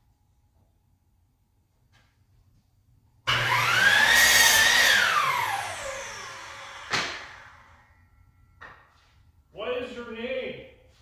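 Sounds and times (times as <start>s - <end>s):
power tool motor whining: 3.3s - 7.8s.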